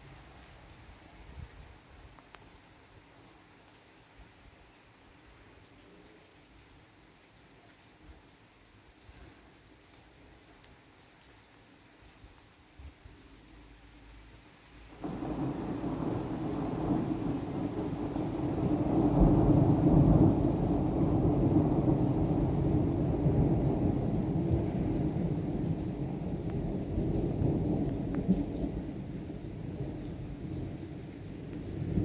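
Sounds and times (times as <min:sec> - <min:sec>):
thunder rolling: 0:15.0 - 0:29.0.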